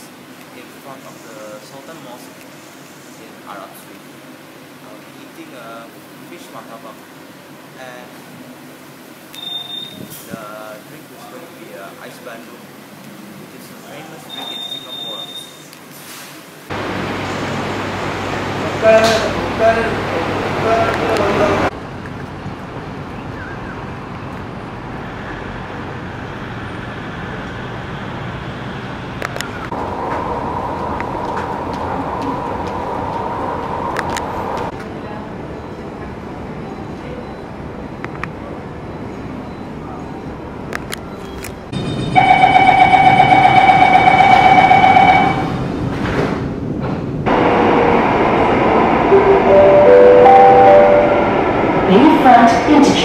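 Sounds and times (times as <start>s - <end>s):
door-closing warning tone: 9.4s - 10.1s, 14.3s - 15.6s, 41.2s - 45.6s, 49.1s - 51.4s
distant road traffic hum: 16.0s - 35.2s
train running rushing noise: 16.2s - 23.2s, 23.9s - 36.6s, 41.6s - 53.0s
underground walkway hum: 29.2s - 34.8s.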